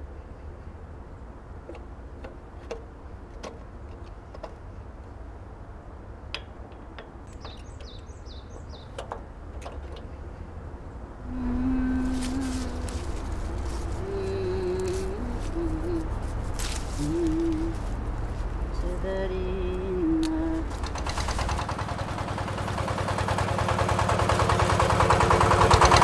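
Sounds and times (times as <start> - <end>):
steady low rumble: 0.0 - 23.5
steady low hum: 0.0 - 24.2
metallic clicks and taps: 6.3 - 8.0, 8.6 - 10.1
birds chirping: 6.4 - 21.6.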